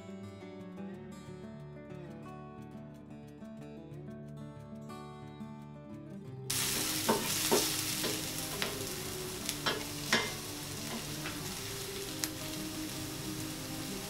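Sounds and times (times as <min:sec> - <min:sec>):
guitar music: 0:00.0 - 0:14.0
wooden spatula knocking pan: 0:06.5 - 0:08.9, 0:09.6 - 0:11.5
vegetables sizzling in oil: 0:06.5 - 0:14.0.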